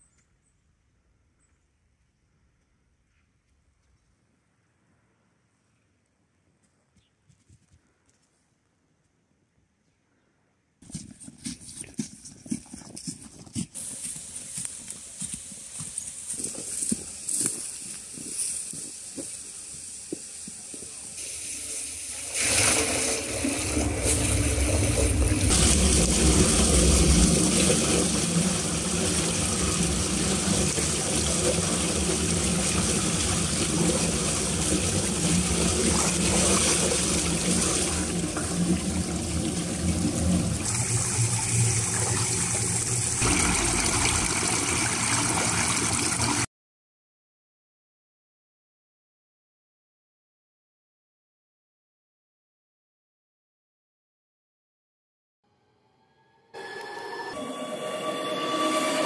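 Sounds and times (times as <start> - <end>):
light footsteps: 10.8 - 19.5
water pouring down a drain: 16.4 - 46.5.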